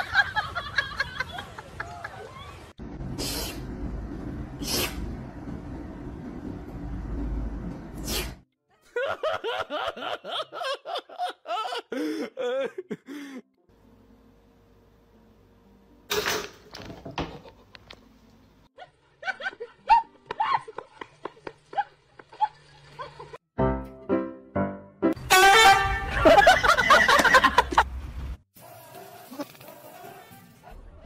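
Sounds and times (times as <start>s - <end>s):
person laughing: 8.8s - 13.5s, 25.9s - 27.9s.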